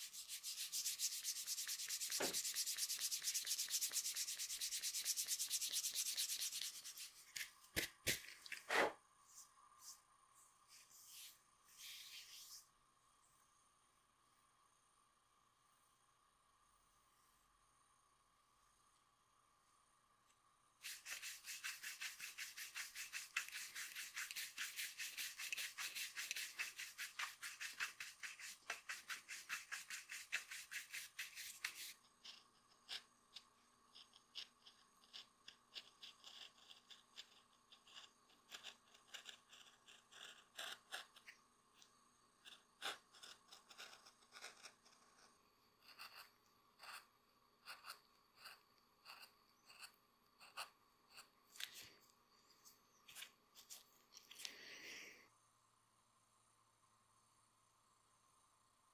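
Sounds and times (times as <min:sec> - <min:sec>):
brush scrubbing shoe sole: 0:00.0 - 0:07.2, 0:20.8 - 0:32.0
knife shaving leather: 0:20.8 - 0:41.4, 0:42.4 - 0:51.3.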